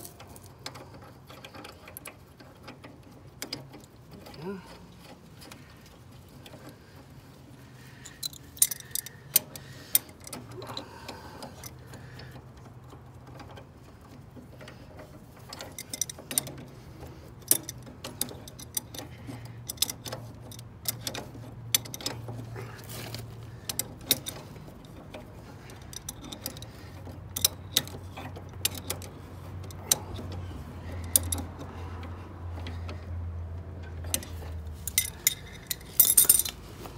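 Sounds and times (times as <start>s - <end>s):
metal tools clinking: 0.0s - 2.1s, 33.8s - 36.9s
ratchet wrench clicking: 8.1s - 10.6s, 17.4s - 22.3s, 23.1s - 33.1s, 33.8s - 36.9s.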